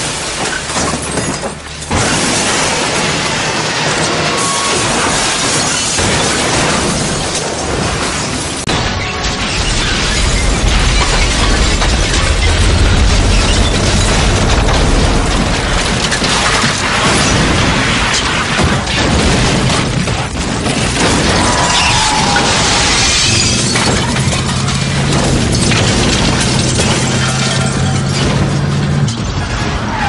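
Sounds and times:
debris crashing and shattering: 0:00.0 - 0:30.0
vehicle explosion rumbling blast: 0:01.9 - 0:29.9.

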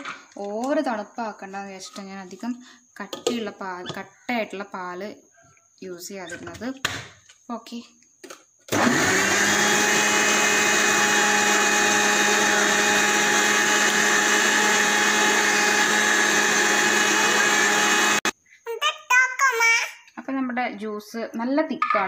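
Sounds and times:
mixer grinder blending: 0:08.7 - 0:18.3.

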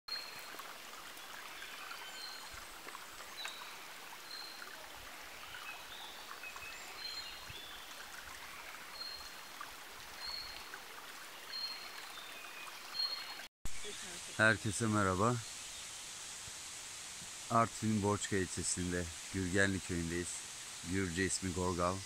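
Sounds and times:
stream running: 0:00.1 - 0:22.0.

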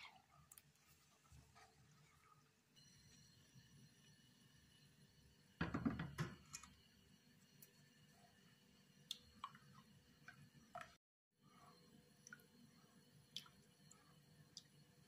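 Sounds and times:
spatula stirring milk in a pot: 0:00.0 - 0:05.2.

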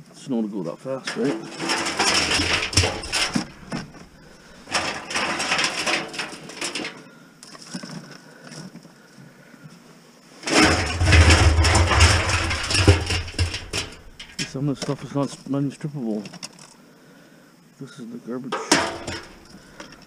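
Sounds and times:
scrap wire rustling and clattering: 0:01.0 - 0:08.0, 0:10.4 - 0:15.3, 0:18.6 - 0:20.0.

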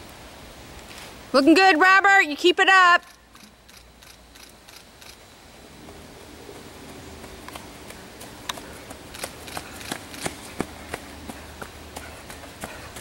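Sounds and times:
running footsteps on leafy trail: 0:05.8 - 0:13.0.

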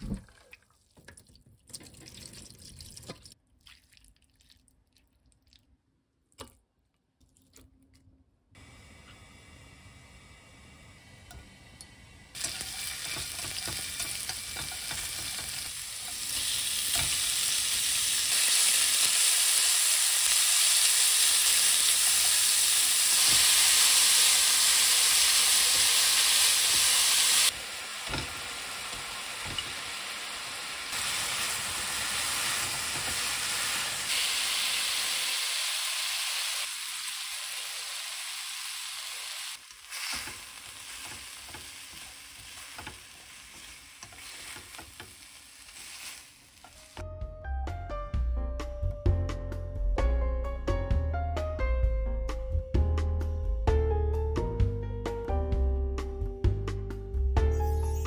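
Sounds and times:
oil sizzling in a wok: 0:08.6 - 0:47.0.

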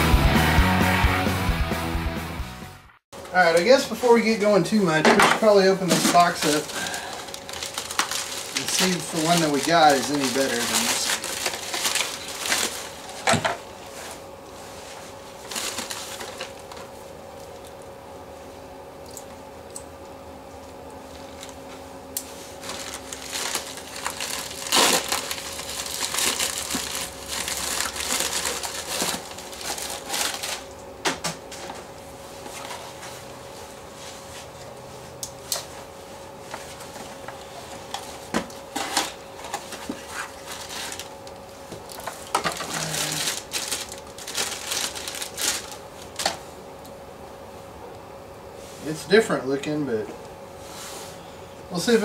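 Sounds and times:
packaging rustling and crinkling: 0:05.4 - 0:17.7, 0:22.3 - 0:30.7, 0:37.9 - 0:46.5
envelope tearing: 0:06.0 - 0:13.3, 0:15.4 - 0:16.7, 0:22.5 - 0:30.7, 0:40.0 - 0:41.2, 0:42.5 - 0:46.2.

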